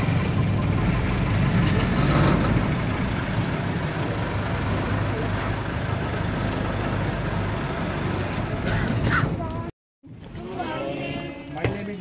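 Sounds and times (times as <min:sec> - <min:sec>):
jeep engine idling: 0:00.0 - 0:09.6.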